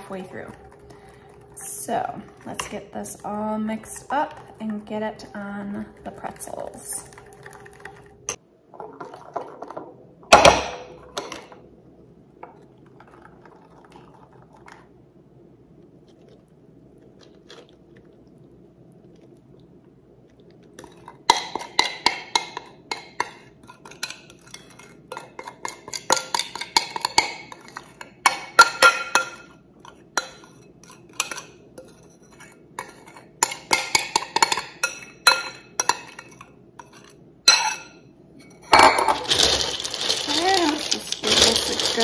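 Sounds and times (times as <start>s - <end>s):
metal spoon scraping a bowl: 30.2s - 38.7s.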